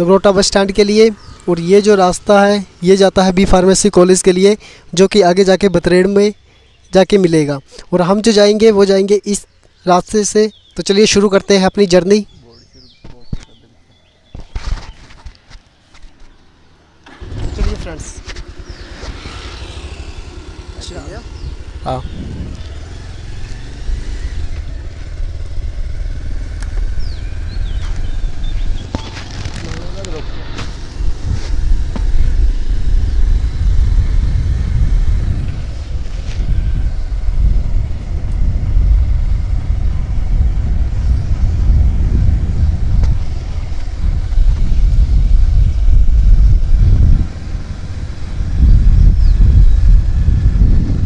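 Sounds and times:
motorcycle engine running: 0.0s - 7.2s, 14.2s - 51.0s
road and vehicle noise: 0.0s - 51.0s
wind buffeting microphone: 17.1s - 51.0s.

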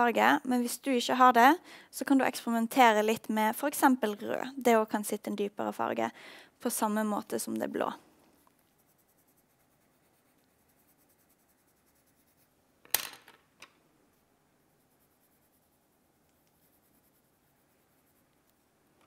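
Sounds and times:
pencil scratching on paper: 8.4s - 12.6s, 14.6s - 18.7s
pencil clattering on table: 12.8s - 13.8s.

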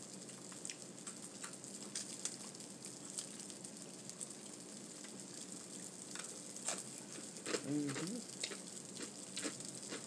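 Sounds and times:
person chewing crispy food: 6.1s - 10.0s.

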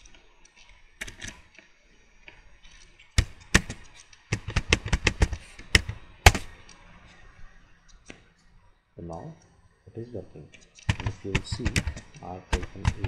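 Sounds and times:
keyboard keys clicking: 10.6s - 13.0s.

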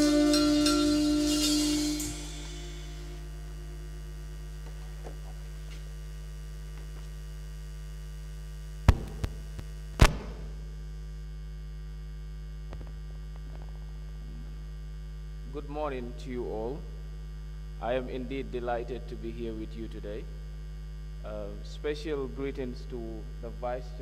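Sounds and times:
saxophone tune: 0.0s - 4.1s
mains hum: 0.0s - 24.0s
sharp knocks: 8.9s - 9.4s, 10.0s - 10.5s.

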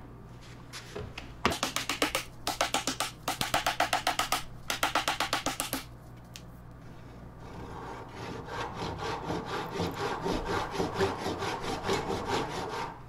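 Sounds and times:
mallet tapping on wood: 1.5s - 5.9s.

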